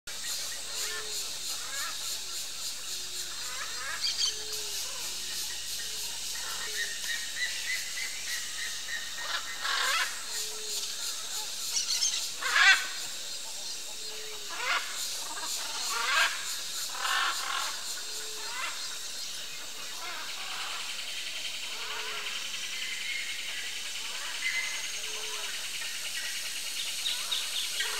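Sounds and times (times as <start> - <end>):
steady high hiss: 0.1 - 27.9
macaws squawking: 9.1 - 10.8, 11.8 - 13.0, 14.2 - 18.8.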